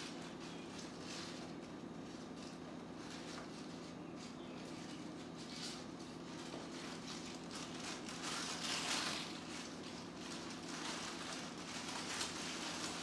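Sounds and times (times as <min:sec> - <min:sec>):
tissue paper rustling and tearing: 0:06.6 - 0:13.0.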